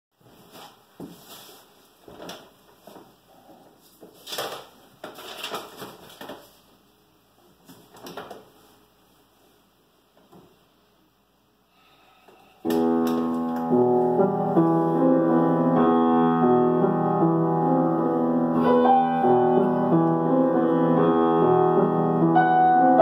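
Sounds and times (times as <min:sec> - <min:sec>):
clothing rustling: 0:00.2 - 0:06.8
sheet music rustling: 0:00.2 - 0:10.7, 0:12.6 - 0:23.0.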